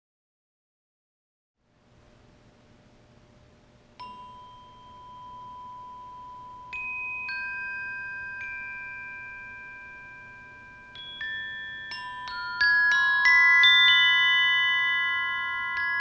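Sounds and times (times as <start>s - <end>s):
glockenspiel notes ringing: 4.0s - 16.0s.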